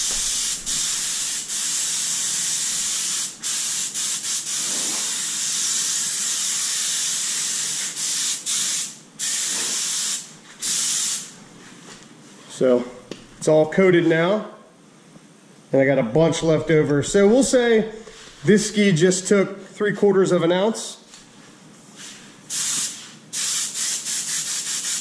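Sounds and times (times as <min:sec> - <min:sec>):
spray gun hissing: 0:00.0 - 0:11.3, 0:22.5 - 0:25.0.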